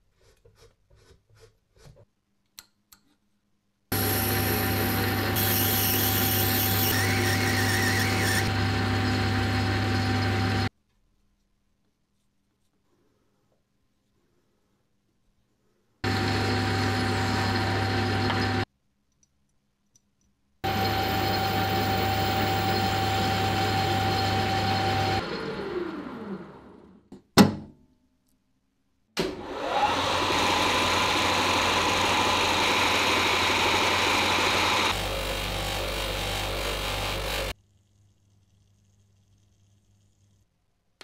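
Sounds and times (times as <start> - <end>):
electric motor whining: 20.6 - 26.3.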